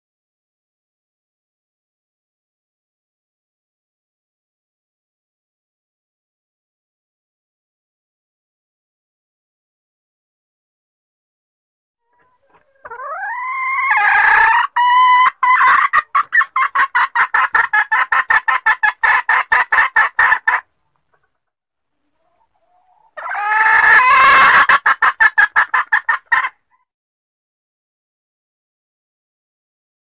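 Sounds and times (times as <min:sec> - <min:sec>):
hen cackling: 0:12.1 - 0:21.3, 0:22.2 - 0:26.8.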